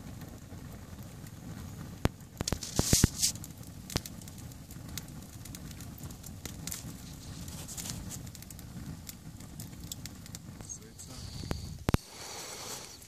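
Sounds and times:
campfire flame rushing: 0.0s - 13.0s
fire crackling and popping: 0.0s - 13.0s
brief hiss: 2.5s - 3.4s, 11.0s - 13.0s.

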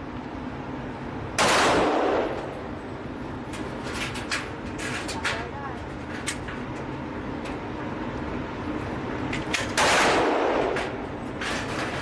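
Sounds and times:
gunshots: 1.4s - 2.4s, 9.8s - 11.0s.

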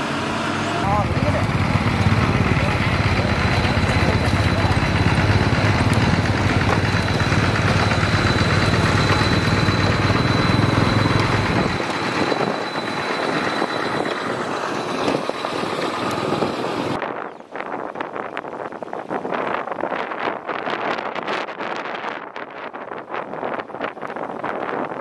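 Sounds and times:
excavator diesel engine rumbling: 0.0s - 17.0s
steady high whine: 0.0s - 17.0s.

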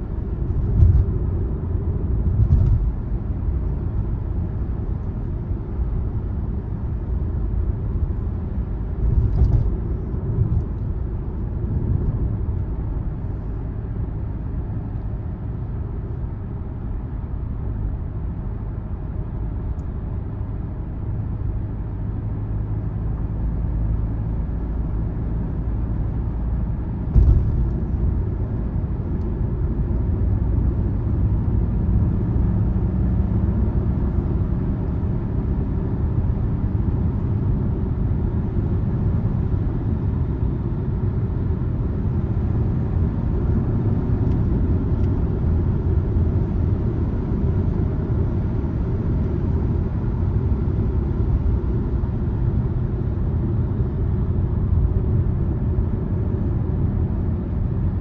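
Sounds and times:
car engine and tyre rumble: 0.0s - 58.0s
sharp thump: 27.1s - 27.8s.

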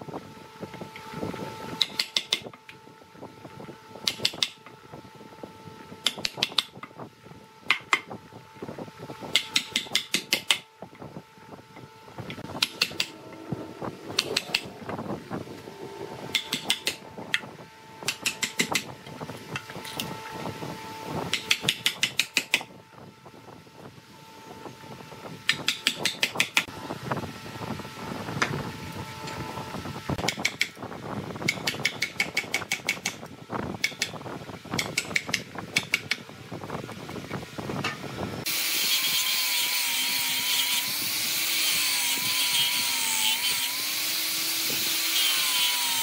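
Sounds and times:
turning tool clicking on wood: 16.3s - 17.0s, 18.0s - 18.9s
wood lathe motor hum: 38.5s - 46.0s.

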